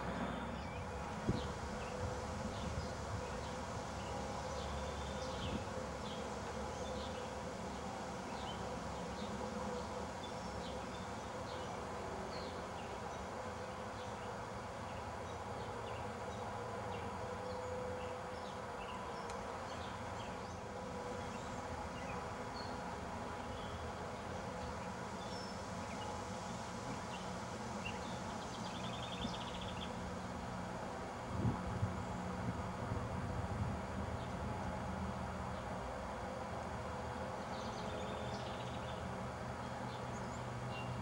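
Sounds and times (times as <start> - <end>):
buzzing hum and hiss: 0.0 - 41.0.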